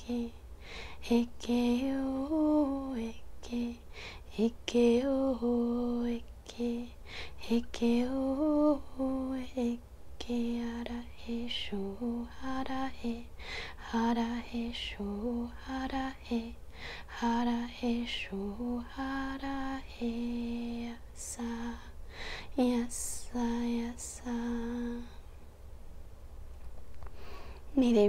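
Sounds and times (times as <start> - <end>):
woman chanting syllables: 27.7 - 28.0.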